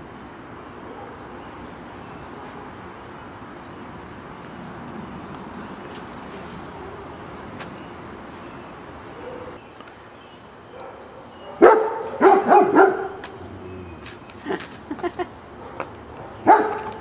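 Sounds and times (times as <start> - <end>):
puppy barking: 9.2 - 9.6, 10.7 - 13.3, 15.6 - 17.0.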